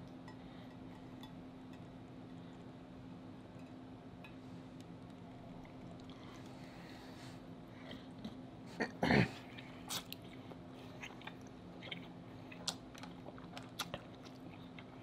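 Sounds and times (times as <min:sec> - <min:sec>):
wet chewing with clicks and smacks: 0:09.6 - 0:15.0.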